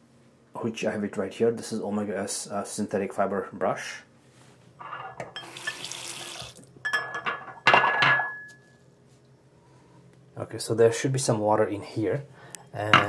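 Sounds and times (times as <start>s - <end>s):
tap water running into sink: 5.4s - 6.7s
ceramic bowl clinking against sink: 6.8s - 8.6s.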